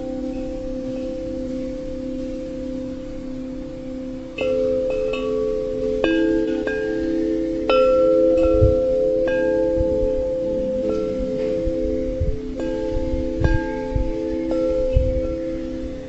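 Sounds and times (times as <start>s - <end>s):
chimes ringing: 0.0s - 16.0s
soft low thuds: 11.4s - 15.5s.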